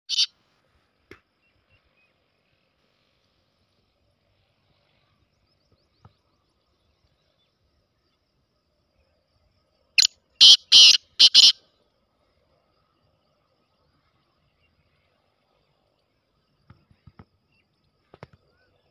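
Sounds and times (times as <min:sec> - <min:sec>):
bird harsh scratchy call: 0:00.1 - 0:00.3, 0:10.4 - 0:11.6.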